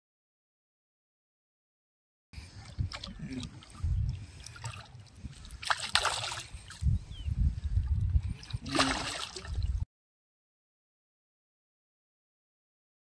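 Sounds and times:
water splashing and trickling: 2.4s - 9.9s.

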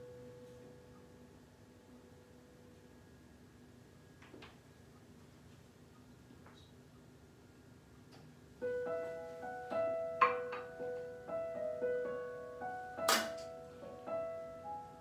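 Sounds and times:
soft slow piano music: 0.0s - 4.2s, 8.5s - 15.0s.

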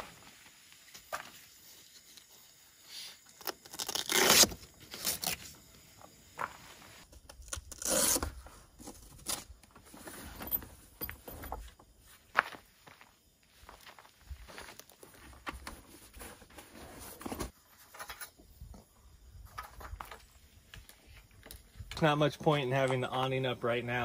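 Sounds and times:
velcro straps pulled apart: 3.3s - 5.5s, 7.3s - 8.3s.

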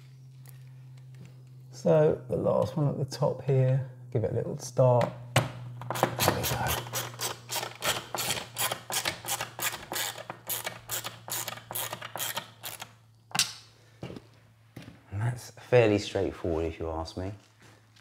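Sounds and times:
ratchet screwdriver clicking: 5.9s - 12.9s.

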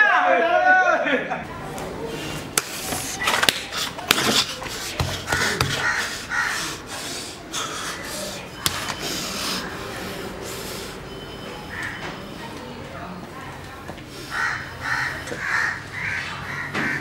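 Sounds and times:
crows cawing: 5.3s - 6.8s, 14.3s - 17.0s.

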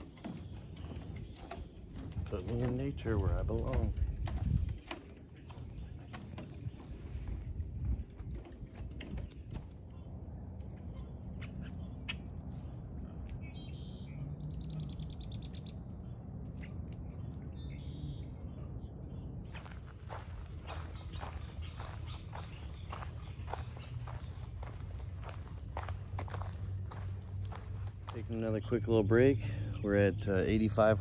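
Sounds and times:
crickets trilling: 0.0s - 31.0s.

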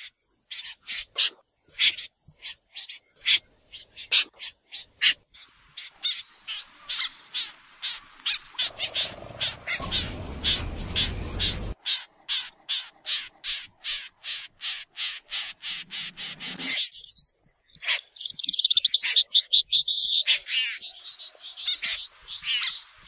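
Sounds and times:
snipe calling: 0.0s - 23.0s
low rumbling noise: 8.6s - 11.8s.

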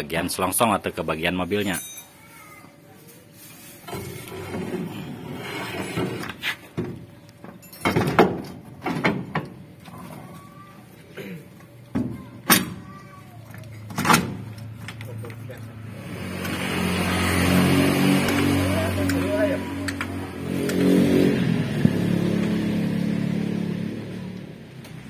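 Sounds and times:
metal scraping: 3.6s - 6.8s.

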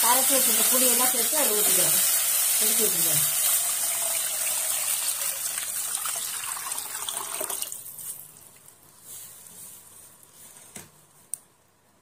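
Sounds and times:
liquid pouring into a pan: 3.3s - 7.8s.

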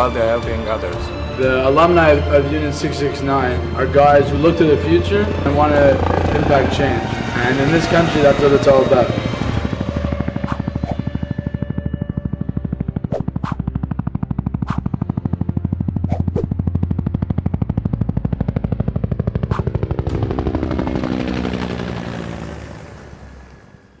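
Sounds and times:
helicopter rotor beating: 0.0s - 24.0s.

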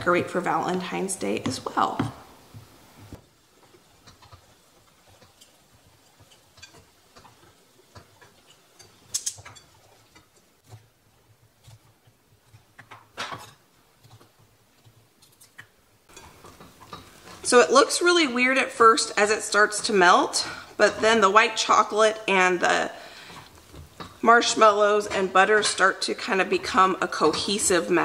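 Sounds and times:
spatula stirring in glass bowl: 3.5s - 17.6s.

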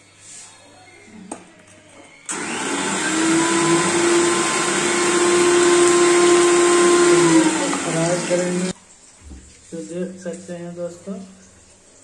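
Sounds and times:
electric motor whooshing hum: 2.3s - 8.8s.

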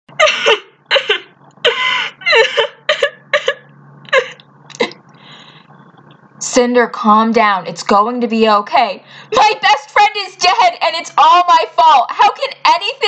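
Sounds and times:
person sobbing: 0.1s - 5.6s, 9.1s - 9.7s.

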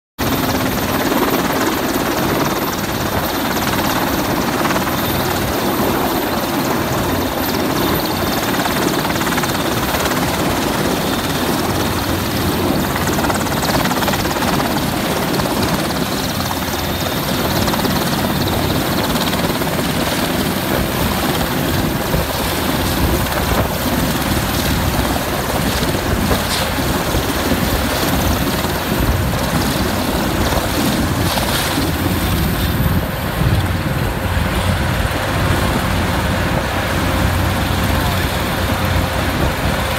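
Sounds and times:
helicopter hovering: 0.2s - 39.9s.

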